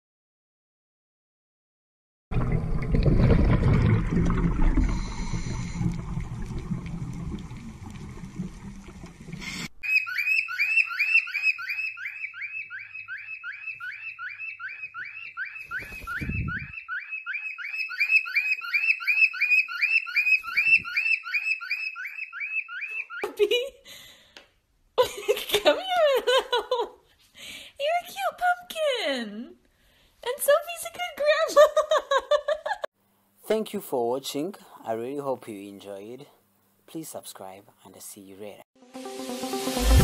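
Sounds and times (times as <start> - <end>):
cockatiel chirping: 9.8 - 23.2.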